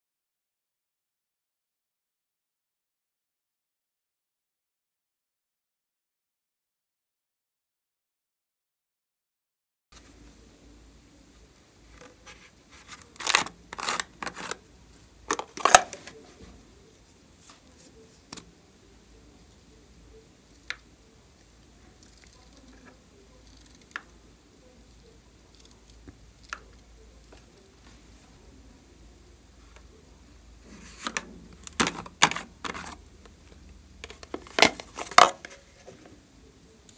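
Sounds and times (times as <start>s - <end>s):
plastic containers crinkling: 12.3s - 14.6s, 15.3s - 16.2s, 30.8s - 36.0s.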